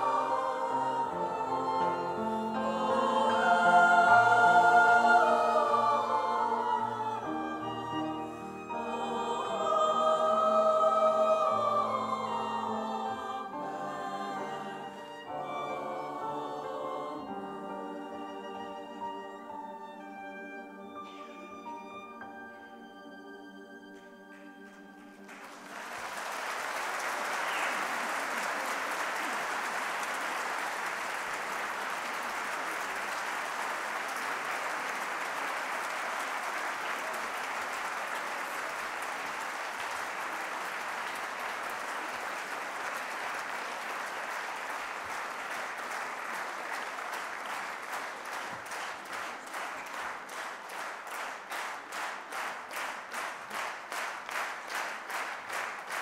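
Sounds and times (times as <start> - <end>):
audience applause: 0.0 - 1.8, 24.3 - 56.0
choir singing: 0.0 - 25.8.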